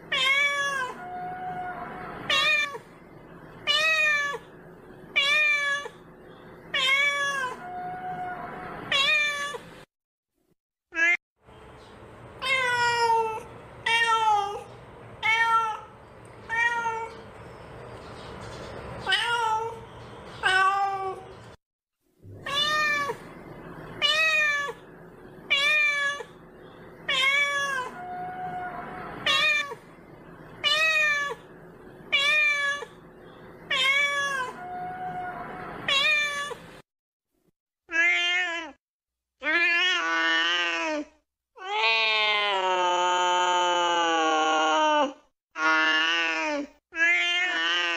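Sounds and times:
kitten meowing: 6.7s - 9.6s, 22.4s - 23.2s, 27.1s - 29.8s, 33.7s - 36.6s.

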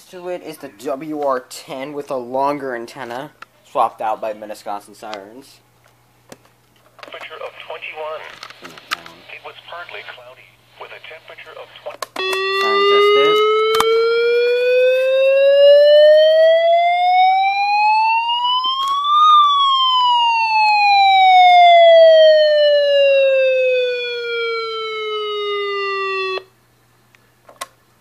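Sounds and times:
electronic siren wail: 12.2s - 26.5s.

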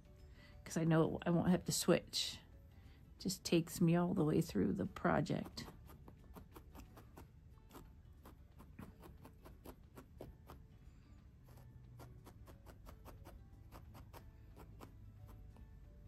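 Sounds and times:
felting needle poking wool: 4.4s - 16.0s.

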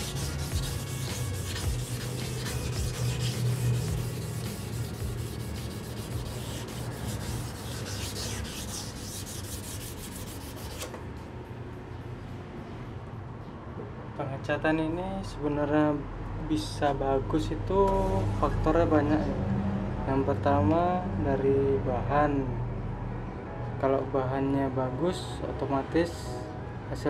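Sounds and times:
sandpaper rubbing on metal: 0.0s - 10.9s.

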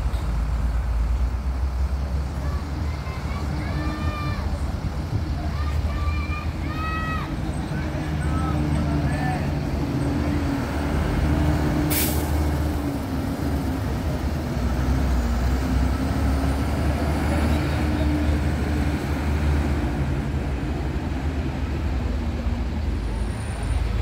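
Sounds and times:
bus diesel engine running: 0.0s - 24.0s
air brake hiss: 11.9s - 12.4s.

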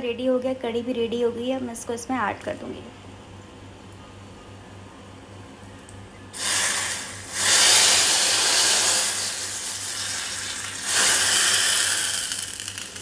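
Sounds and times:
hot oil sizzling in curry: 6.4s - 13.0s.

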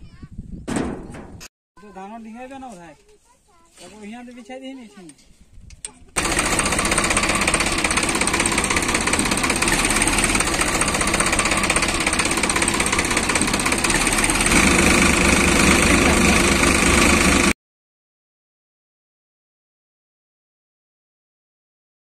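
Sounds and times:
tractor diesel engine running: 6.2s - 17.6s.

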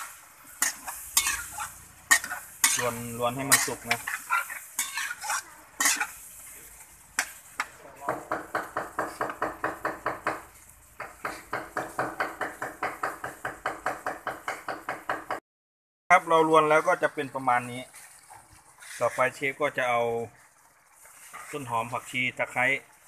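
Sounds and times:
metal spatula scraping pan: 0.0s - 7.8s
meat sizzling in wok: 0.0s - 15.3s, 16.2s - 23.0s.

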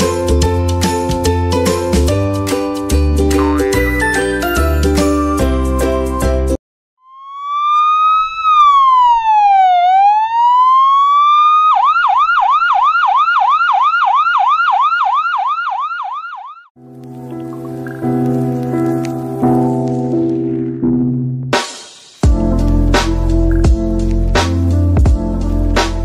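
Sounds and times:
music: 0.0s - 6.6s, 16.8s - 26.0s
electronic siren wail and yelp: 7.0s - 16.7s.

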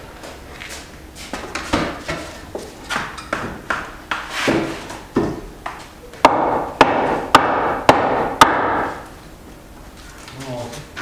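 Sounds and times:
sharp knocks: 6.2s - 9.0s.

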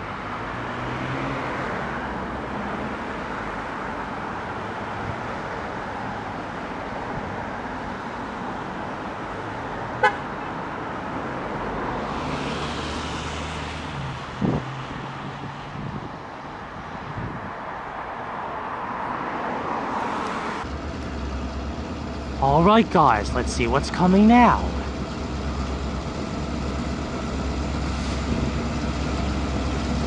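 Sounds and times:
vehicle passing by: 0.0s - 3.2s, 11.0s - 16.0s
city road traffic: 0.0s - 30.0s.

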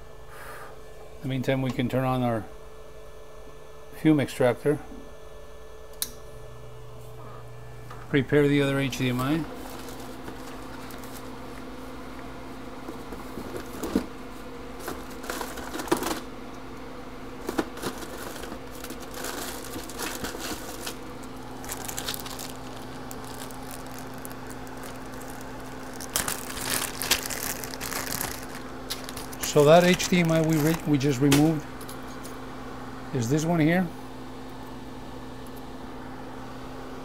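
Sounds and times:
extractor fan hum: 0.0s - 37.0s
plastic packaging crinkling: 9.5s - 11.5s, 14.8s - 16.3s, 17.4s - 31.6s.

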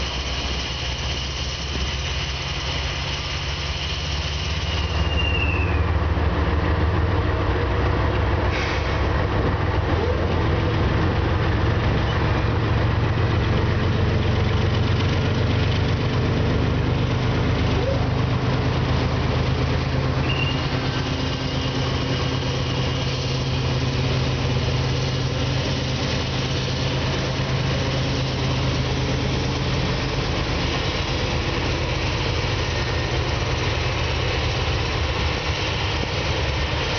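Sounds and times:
locomotive diesel engines droning: 0.0s - 36.9s.

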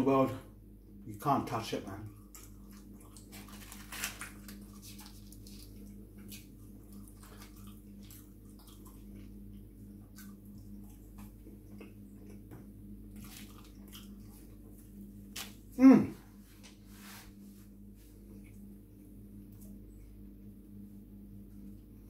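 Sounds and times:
steady low hum: 0.0s - 22.0s
chewing and wet mouth clicks: 4.5s - 12.5s.

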